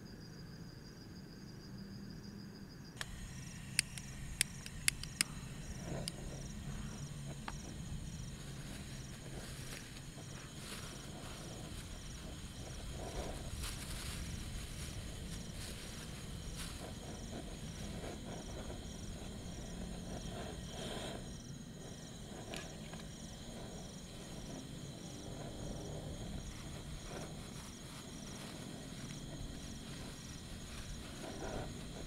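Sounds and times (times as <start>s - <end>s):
night insects chirping: 0.0s - 32.0s
camping gear clicks and rustles: 7.3s - 17.9s, 26.5s - 32.0s.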